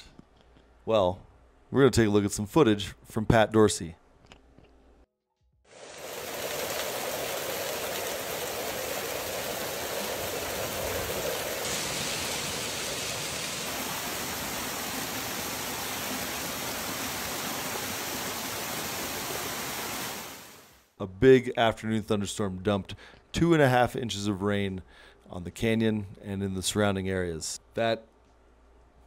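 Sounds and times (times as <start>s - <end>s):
flood water rushing: 5.7s - 20.7s.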